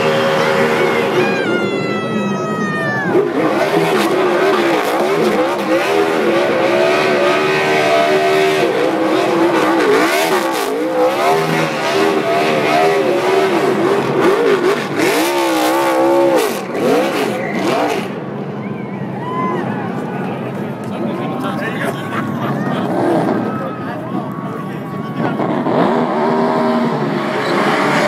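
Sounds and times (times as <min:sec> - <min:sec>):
race car engine revving: 0:00.0 - 0:19.0, 0:19.8 - 0:28.0.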